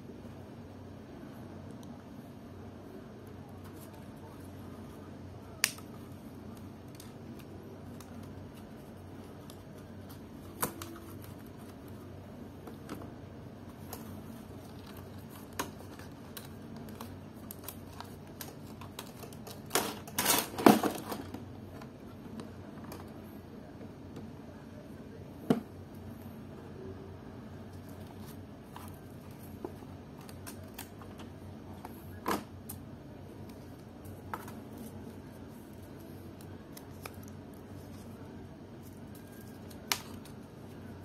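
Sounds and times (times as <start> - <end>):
plastic keyboard clicks and snaps: 5.6 - 5.9.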